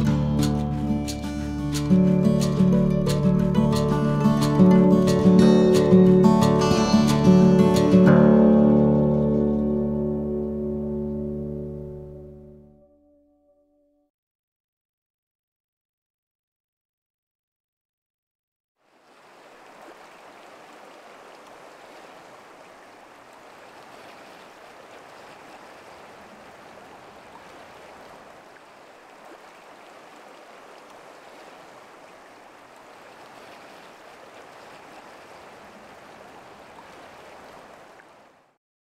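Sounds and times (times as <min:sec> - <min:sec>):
creek water flowing: 0:00.0 - 0:12.0, 0:18.8 - 0:38.6.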